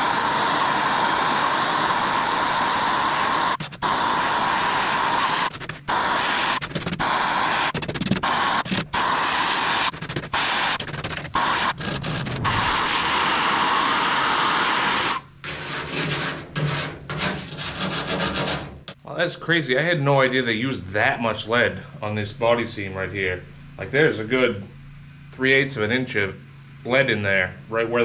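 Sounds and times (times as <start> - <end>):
gas torch rushing noise: 0.0 - 19.0.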